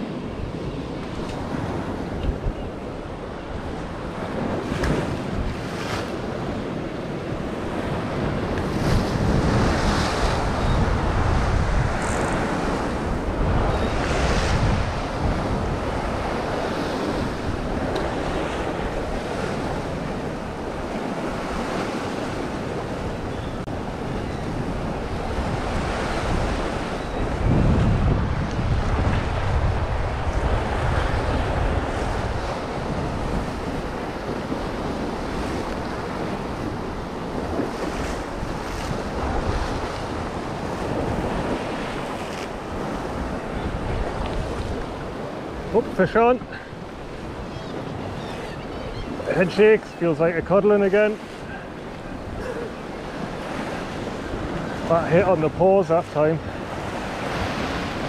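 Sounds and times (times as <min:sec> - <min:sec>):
wind rumbling on microphone: 0:00.0 - 0:55.8, 0:56.4 - 0:58.0
waves washing against rocks: 0:23.9 - 0:48.2, 0:49.1 - 0:58.0.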